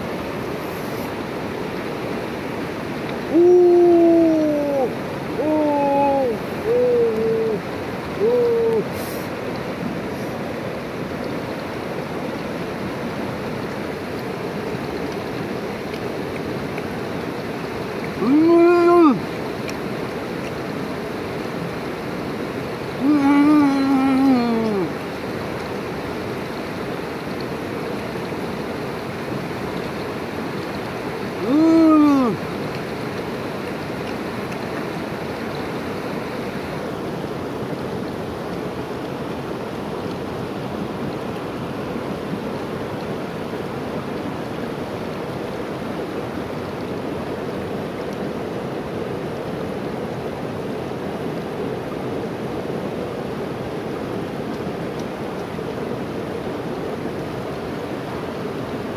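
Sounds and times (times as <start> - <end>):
rushing river: 0.0 - 58.9
person humming: 3.3 - 7.6, 8.2 - 9.2, 18.2 - 19.2, 23.0 - 25.0, 31.4 - 32.4.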